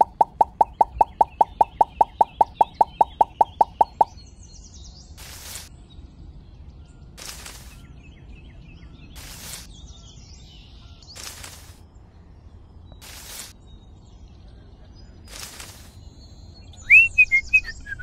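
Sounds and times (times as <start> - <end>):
faint chirps: 0.0 - 4.2
short hissing bursts: 5.2 - 5.7, 9.2 - 9.7, 13.0 - 13.6.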